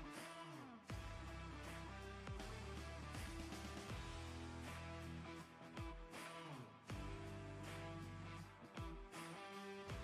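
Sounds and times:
guitar music with steady beat: 0:00.0 - 0:10.0.

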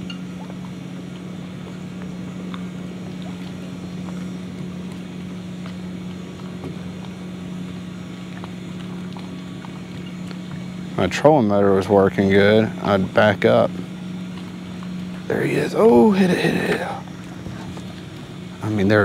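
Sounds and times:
boat motor humming: 0:00.0 - 0:19.0.

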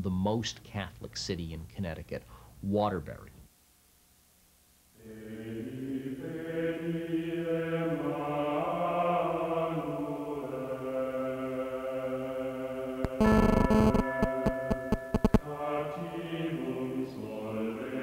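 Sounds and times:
voices chanting sustained notes: 0:05.0 - 0:18.0.

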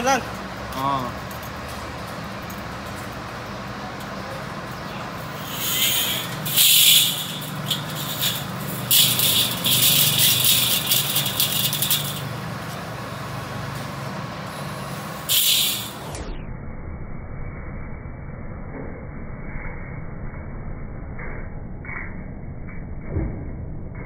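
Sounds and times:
saw blade rattling: 0:05.3 - 0:12.4, 0:15.3 - 0:16.1.

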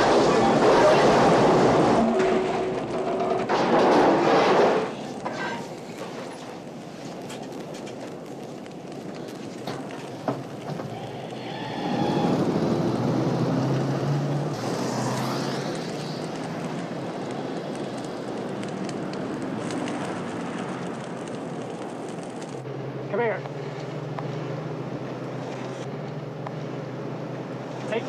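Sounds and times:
road and tyre noise: 0:00.0 - 0:28.0
van engine accelerating: 0:11.7 - 0:16.4.

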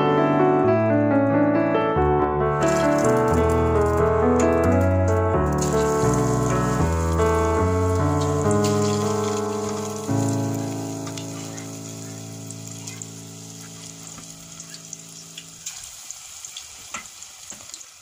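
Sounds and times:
background music chord: 0:00.0 - 0:15.6
oil sizzling while deep-frying: 0:02.6 - 0:18.0
sharp pops of hot oil: 0:16.5 - 0:17.8.

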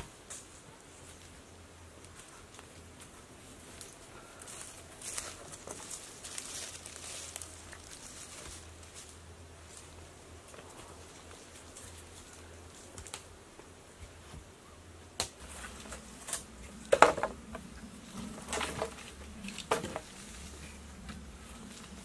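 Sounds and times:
wooden knocks and thuds: 0:16.9 - 0:17.4.

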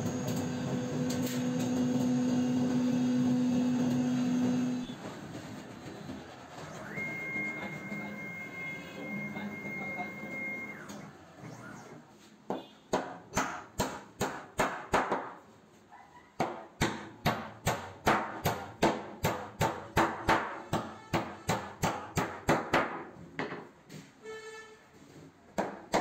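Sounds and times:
router spindle whine: 0:00.0 - 0:05.0, 0:06.6 - 0:12.0.

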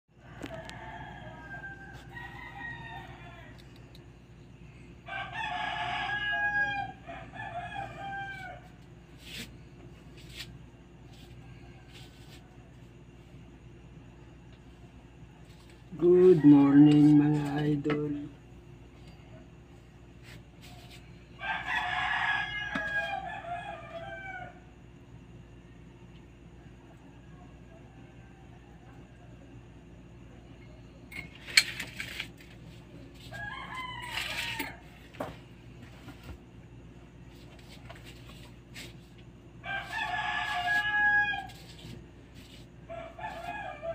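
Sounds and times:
roosters crowing: 0:00.1 - 0:13.2, 0:15.3 - 0:18.2, 0:20.2 - 0:25.1, 0:31.4 - 0:43.9.

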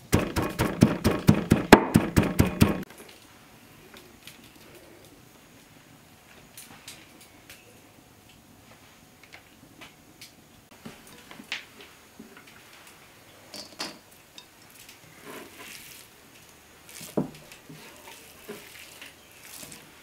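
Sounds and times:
ground meat squishing: 0:15.6 - 0:20.0.

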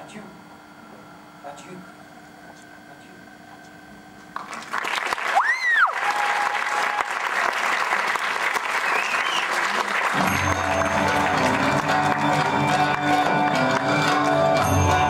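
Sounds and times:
audience applauding: 0:04.4 - 0:15.0
person whistling: 0:08.9 - 0:09.6
music: 0:10.1 - 0:15.0.

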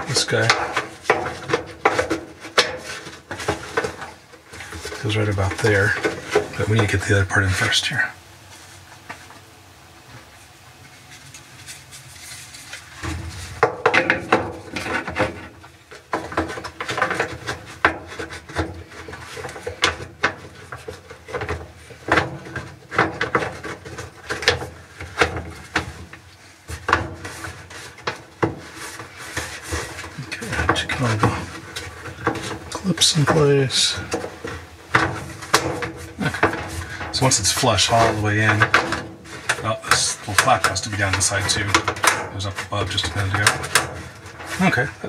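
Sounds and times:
plastic parts knocking and clicking: 0:12.7 - 0:45.0.

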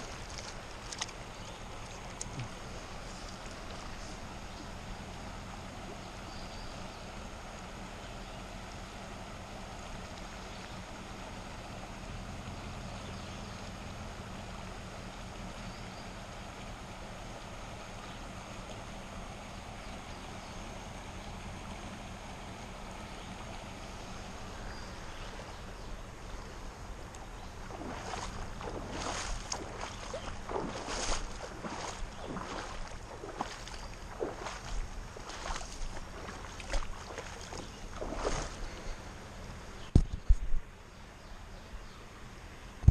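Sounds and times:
footsteps splashing through water: 0:00.0 - 0:05.2, 0:27.1 - 0:39.0
rocky creek rushing: 0:00.0 - 0:40.0.

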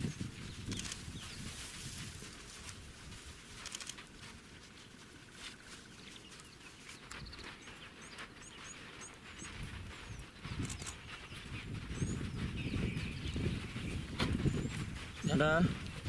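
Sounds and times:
elephant footsteps on sand: 0:00.0 - 0:16.0
bird chirping: 0:05.7 - 0:15.5.

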